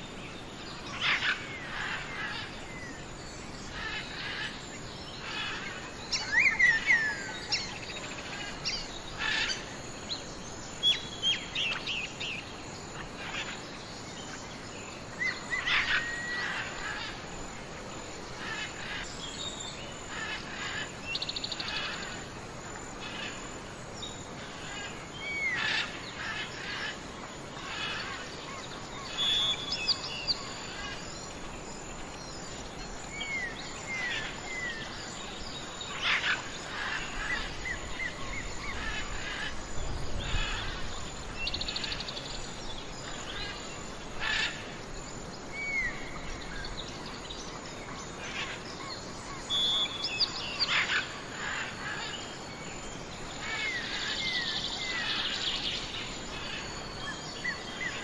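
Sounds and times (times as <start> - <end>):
outdoor ambience hiss: 0.0 - 58.0
songbirds calling: 0.0 - 58.0.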